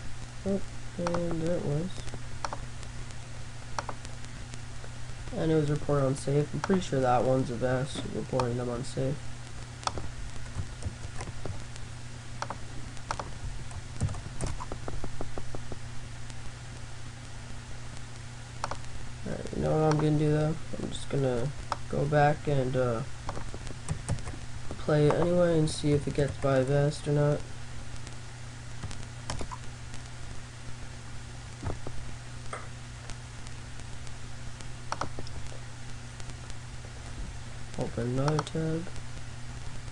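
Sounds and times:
steady low hum: 0:00.0 - 0:39.9
keyboard and mouse clicks: 0:02.4 - 0:02.6, 0:03.8 - 0:04.0, 0:06.6 - 0:06.9, 0:09.8 - 0:11.6, 0:12.4 - 0:15.8, 0:18.6 - 0:18.9, 0:19.8 - 0:20.1, 0:23.3 - 0:24.4, 0:25.0 - 0:26.6, 0:28.8 - 0:29.6, 0:34.9 - 0:35.4, 0:38.2 - 0:38.6
mouse and keyboard clicks: 0:06.6 - 0:06.8, 0:12.4 - 0:13.3, 0:18.6 - 0:18.8, 0:19.9 - 0:20.1, 0:34.9 - 0:35.4.

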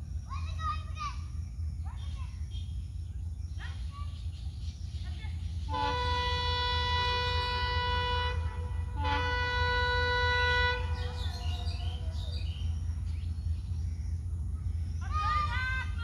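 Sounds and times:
train horn blasts: 0:05.7 - 0:13.0
low rumble: 0:10.7 - 0:16.0.

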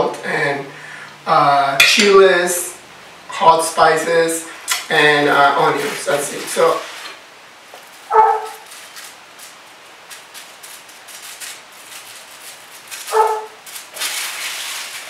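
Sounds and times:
plastic sheet crinkling: 0:05.3 - 0:15.0
dog barking: 0:08.1 - 0:08.6, 0:13.1 - 0:13.6.

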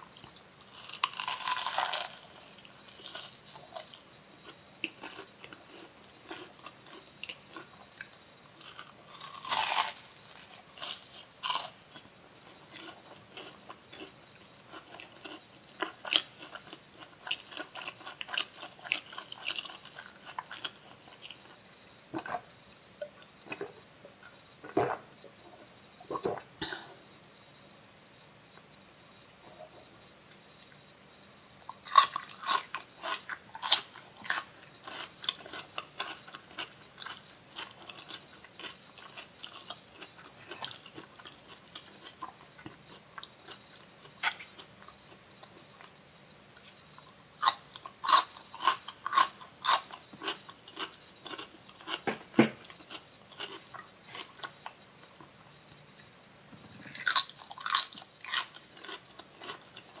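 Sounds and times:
crunching raw vegetables: 0:00.2 - 0:21.6, 0:31.7 - 0:46.0, 0:46.6 - 0:55.3, 0:56.6 - 1:00.0.

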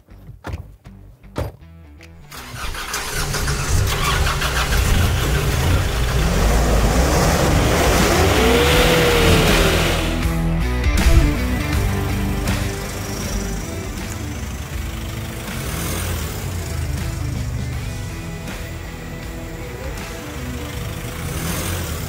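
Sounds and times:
pickup truck engine revving: 0:02.2 - 0:22.0
smooth whine: 0:04.4 - 0:22.0.

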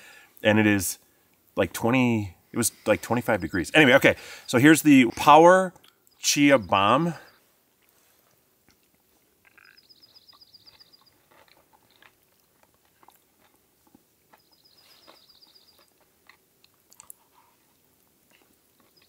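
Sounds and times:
songbird trill: 0:02.9 - 0:07.5, 0:09.4 - 0:11.3, 0:14.3 - 0:16.0
faint chewing: 0:07.6 - 0:19.0.

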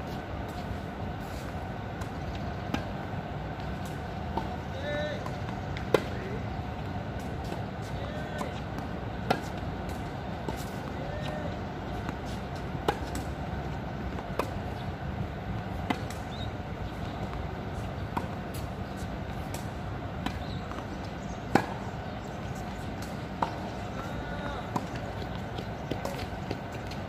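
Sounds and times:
outdoor background noise: 0:00.0 - 0:27.0
tennis ball bouncing: 0:01.9 - 0:21.8, 0:22.5 - 0:27.0
racket striking tennis ball: 0:05.2 - 0:06.2, 0:08.4 - 0:13.4, 0:21.5 - 0:21.8.

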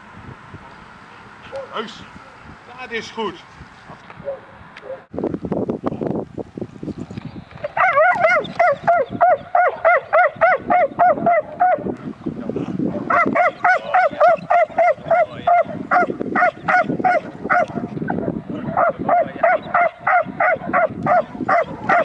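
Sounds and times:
dog barking in rapid volleys: 0:07.7 - 0:11.9, 0:12.9 - 0:22.0.

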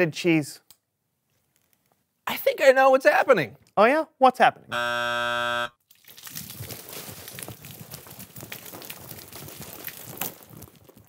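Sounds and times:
loud buzzer: 0:04.7 - 0:05.8
wet beans splattering: 0:05.8 - 0:11.0.

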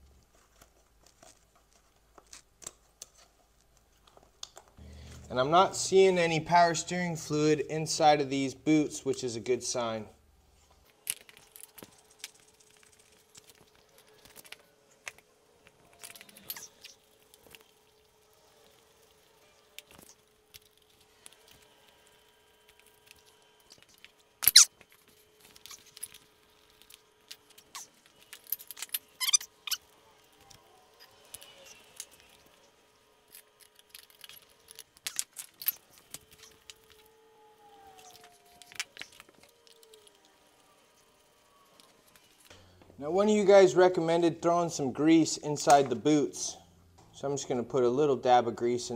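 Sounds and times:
faint steady hum: 0:00.0 - 0:48.9
metal parts and tools clicking: 0:10.8 - 0:21.8, 0:22.7 - 0:32.7, 0:33.3 - 0:37.1.

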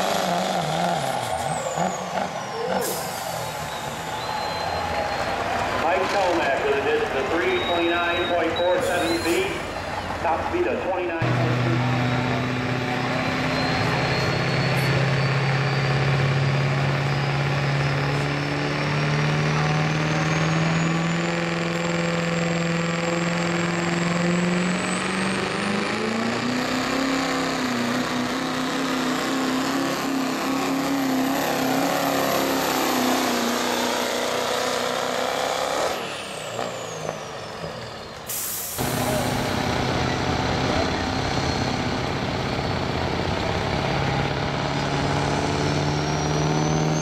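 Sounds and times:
diesel engine running flat out: 0:00.0 - 0:47.0.

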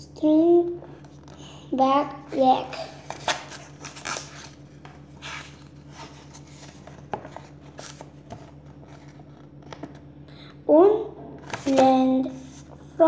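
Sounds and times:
steady low hum: 0:00.0 - 0:13.0
paper pages rustling: 0:02.9 - 0:10.1, 0:11.4 - 0:12.8.

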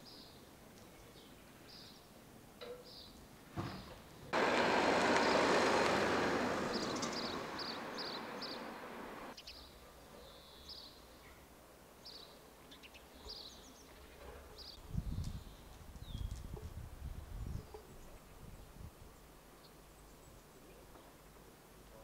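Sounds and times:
loud rushing noise: 0:04.4 - 0:09.3
small birds chirping: 0:05.0 - 0:11.4.

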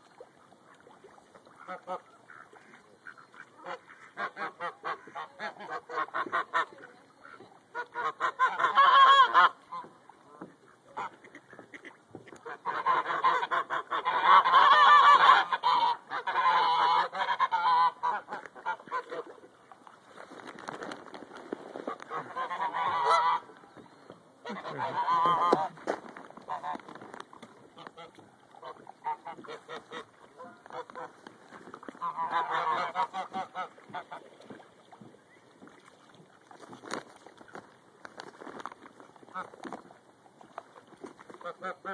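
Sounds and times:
geese honking: 0:01.6 - 0:19.3, 0:21.9 - 0:23.6, 0:24.4 - 0:26.9, 0:32.0 - 0:34.3.

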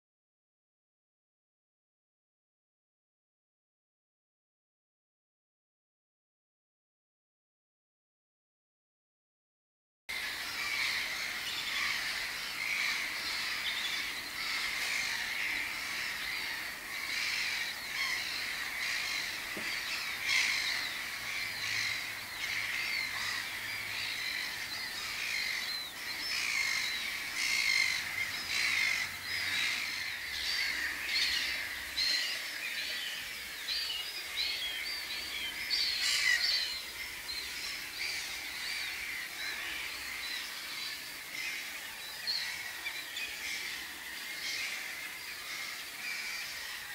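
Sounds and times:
many birds chattering: 0:10.1 - 0:46.9.

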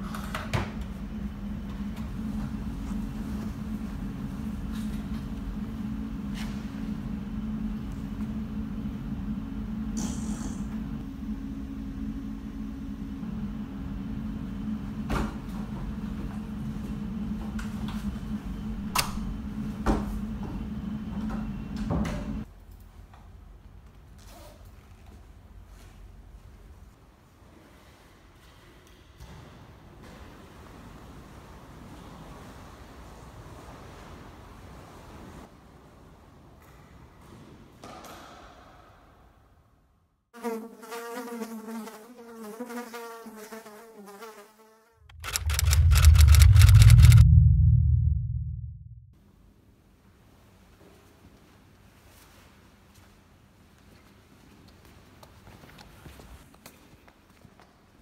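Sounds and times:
steady low hum: 0:00.0 - 0:22.5, 0:45.0 - 0:49.7
fly buzzing: 0:40.4 - 0:45.1
loud low rumble: 0:45.1 - 0:49.2.

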